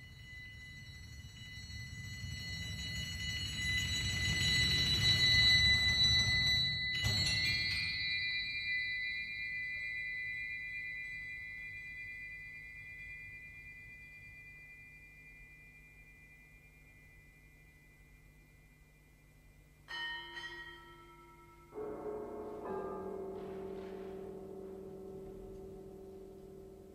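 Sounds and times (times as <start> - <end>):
bell-like metal instrument: 0.0 - 26.9
high ringing metal tones: 0.0 - 26.9
low rumble: 22.6 - 26.9.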